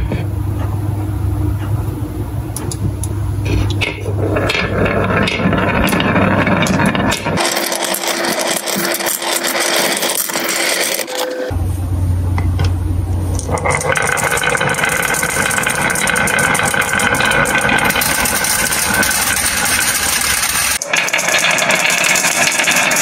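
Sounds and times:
steady low hum: 0.0s - 7.6s, 11.4s - 20.8s
marbles rolling and clattering: 3.7s - 11.5s, 13.4s - 23.0s.

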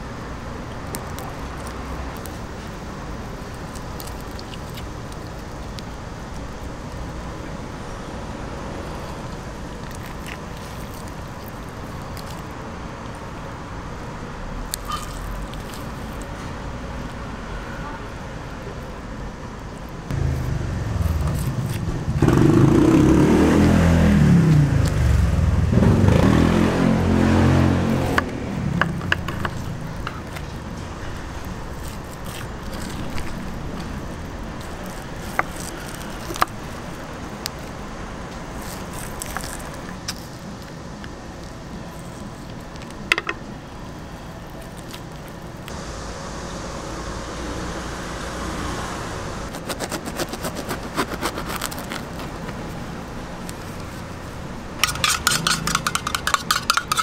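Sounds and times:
low street background: 0.0s - 57.0s
vehicle engine passing by: 20.1s - 36.2s, 45.7s - 49.5s.

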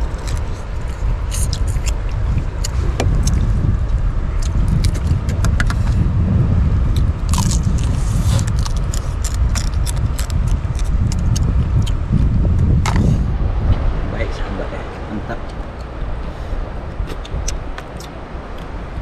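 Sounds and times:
low rumble: 0.0s - 19.0s
crab shells cracking: 7.3s - 12.0s.

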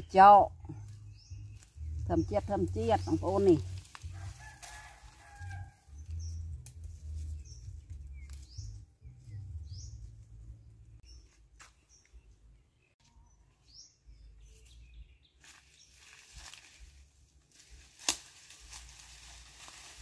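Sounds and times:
low microphone rumble: 0.0s - 4.4s, 5.6s - 11.1s
leaves and twigs clicking: 0.8s - 8.8s, 15.4s - 20.0s
bird chirps: 7.3s - 15.9s.

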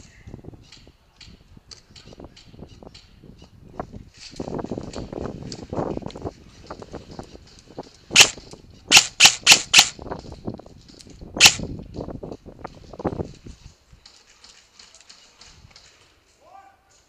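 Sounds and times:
airsoft rifle shots: 8.1s - 10.0s, 11.4s - 11.6s.

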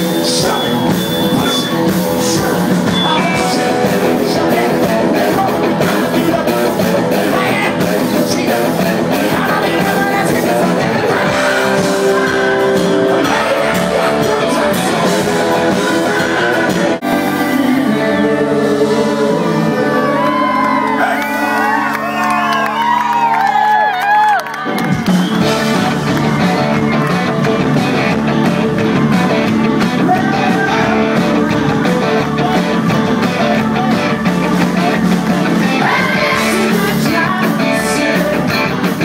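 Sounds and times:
man singing: 0.0s - 21.9s, 27.8s - 39.0s
live rock band playing: 0.0s - 39.0s
crowd whooping: 18.8s - 38.7s.

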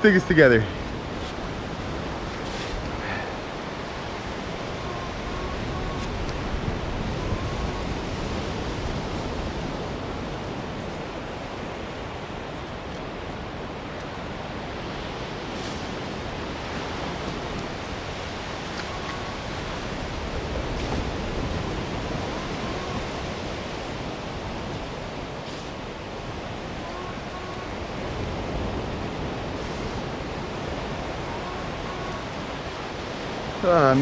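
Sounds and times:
ocean surf: 0.0s - 34.0s
metal detector beeps: 4.6s - 8.4s, 18.8s - 19.9s, 22.1s - 23.2s, 26.8s - 27.8s, 31.2s - 32.3s.

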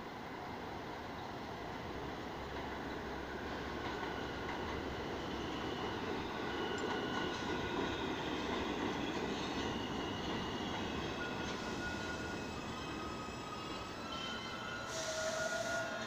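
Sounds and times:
train wheels rolling on rail: 1.1s - 16.0s
high wheel squeals: 4.0s - 16.0s.

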